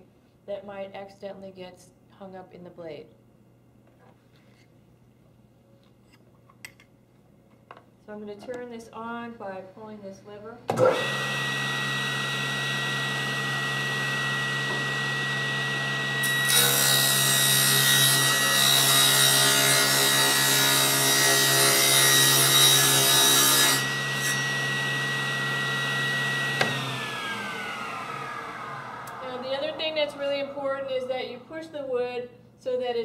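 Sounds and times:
table saw whining: 10.7 - 31.9
saw cutting through board: 10.8 - 31.2.

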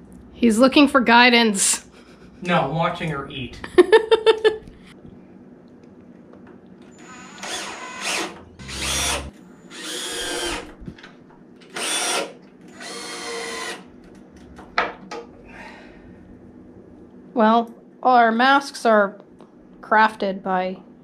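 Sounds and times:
cordless drill into wood: 7.0 - 10.8, 11.7 - 13.8.

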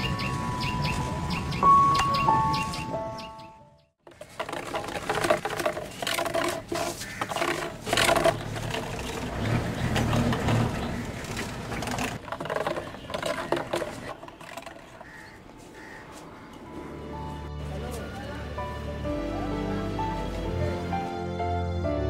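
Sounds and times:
clicking and scraping noises: 4.0 - 15.8
footsteps in sandals on concrete: 5.8 - 7.4, 14.8 - 18.3.

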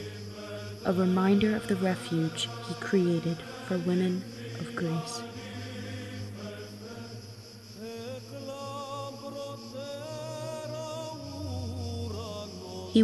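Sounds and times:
voice chanting a hymn: 0.0 - 13.0.

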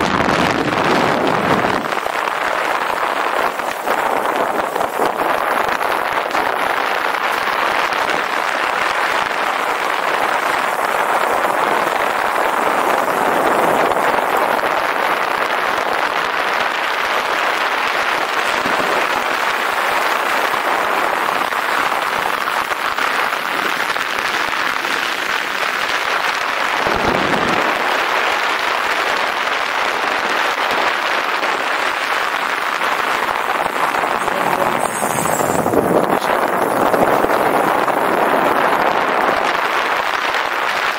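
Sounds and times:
wind on camera microphone: 0.0 - 40.9
rolling noise: 26.5 - 40.2.

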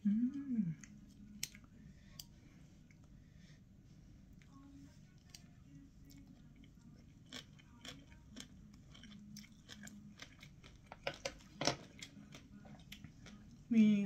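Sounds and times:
person chewing crunchy food: 5.2 - 13.6.

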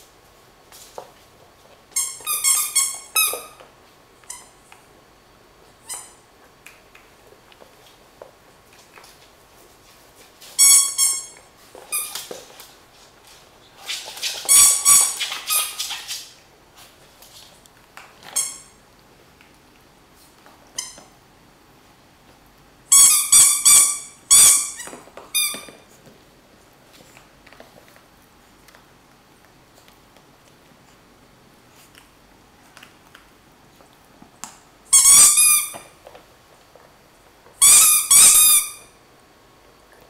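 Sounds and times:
squeaky toy squeaking: 2.0 - 3.6, 10.6 - 12.1, 14.5 - 15.8, 22.9 - 25.6, 34.9 - 35.7, 37.6 - 38.9.

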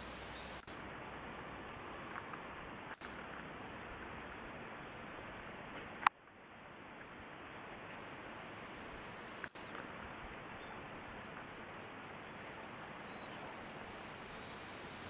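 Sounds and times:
faint outdoor background noise: 0.0 - 15.0.

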